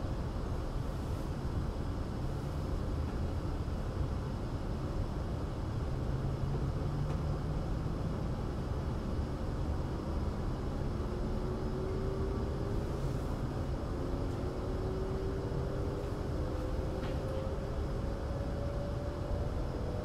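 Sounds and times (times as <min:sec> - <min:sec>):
train low rumble: 0:00.0 - 0:20.0.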